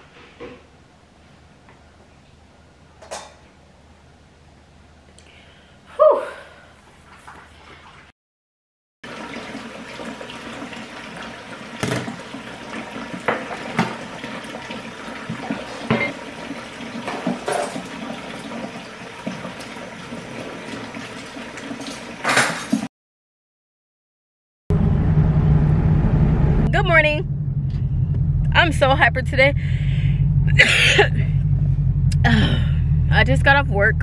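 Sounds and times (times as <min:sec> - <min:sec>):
water running into a steel sink: 0:09.0 - 0:22.8
dishes clattering: 0:17.0 - 0:18.2, 0:21.8 - 0:22.9
dishes clinking and knocking: 0:17.1 - 0:17.9, 0:21.8 - 0:22.9.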